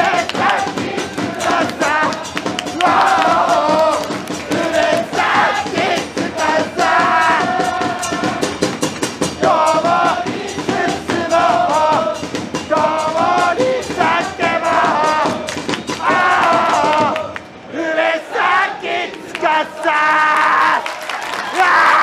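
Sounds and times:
steady drum beats: 0.0s - 17.4s
crowd chanting in unison: 0.0s - 20.9s.

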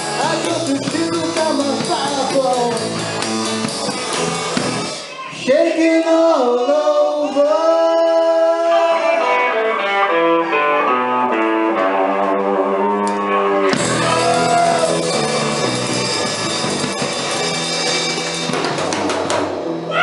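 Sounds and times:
drum and cymbal hits: 0.0s - 5.1s, 13.7s - 19.8s
live rock band playing: 0.0s - 5.3s, 8.5s - 20.0s
electric guitar single notes: 8.6s - 18.8s.

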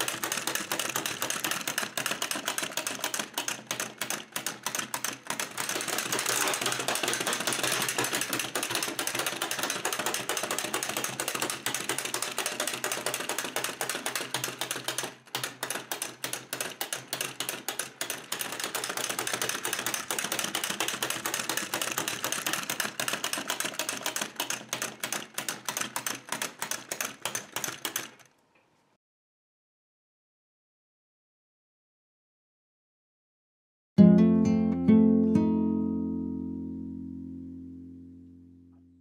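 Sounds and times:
clockwork toy clicking: 0.0s - 28.3s.

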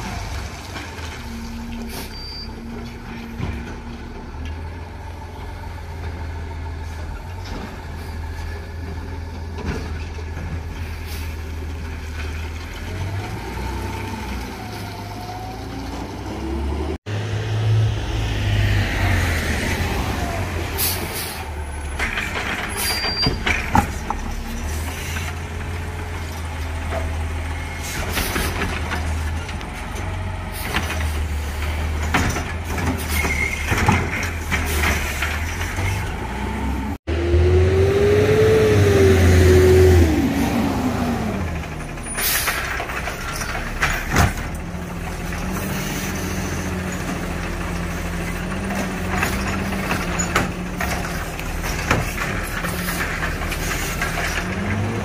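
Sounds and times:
diesel truck engine running: 18.8s - 55.0s
air brakes hissing: 20.7s - 21.6s, 42.1s - 42.8s
metal clanks and knocks: 21.9s - 27.2s, 28.0s - 36.1s, 46.8s - 55.0s.

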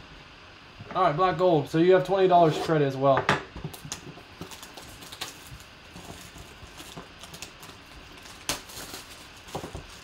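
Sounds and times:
plastic wrap crinkling: 3.7s - 10.0s.

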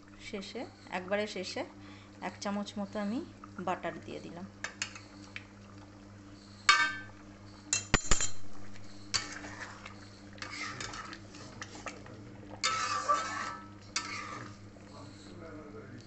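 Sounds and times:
utensils clinking against a wok: 6.7s - 7.1s, 7.7s - 8.4s, 9.1s - 9.5s, 12.6s - 14.5s
spatula scraping through thick gravy: 9.1s - 15.3s.

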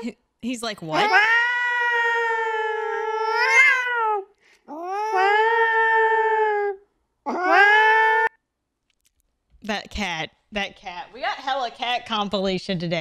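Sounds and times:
cat yowling: 0.9s - 8.4s.

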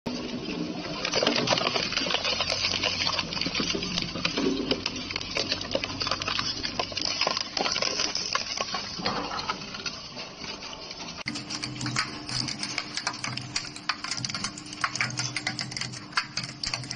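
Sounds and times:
plastic bottles cracking: 1.0s - 9.8s.

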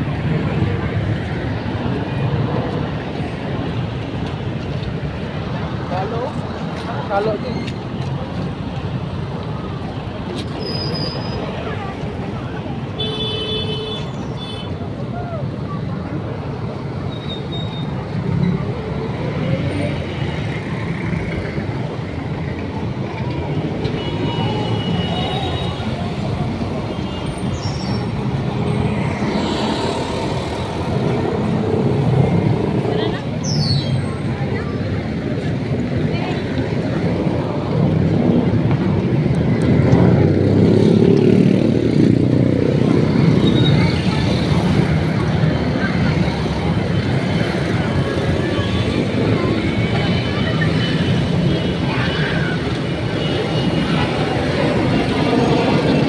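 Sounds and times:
street traffic: 0.0s - 56.0s
brief high squeal: 10.5s - 11.5s.

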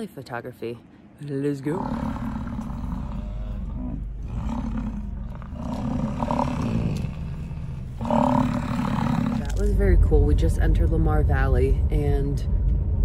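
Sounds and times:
bison bellowing: 1.7s - 9.7s.

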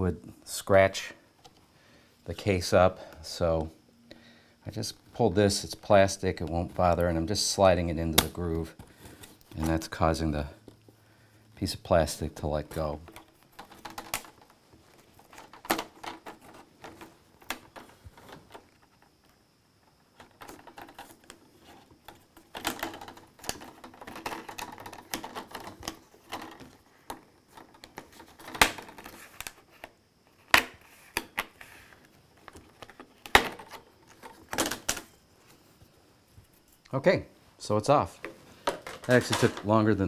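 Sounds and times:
plastic scraping and rattling: 12.8s - 19.1s, 20.2s - 35.2s, 38.2s - 39.8s.

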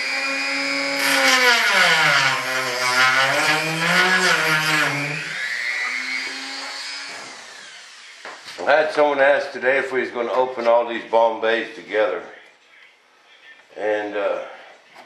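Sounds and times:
power tool motor running: 0.0s - 8.5s.

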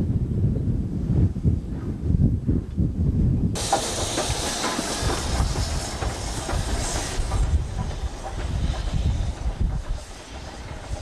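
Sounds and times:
locomotive low rumble: 3.3s - 11.0s
steam hissing: 3.6s - 11.0s
wheels clacking over rail joints: 3.6s - 11.0s.

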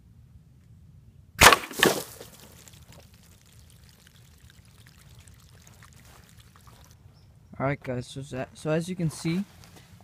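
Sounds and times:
water splashing and pouring: 1.7s - 7.0s.

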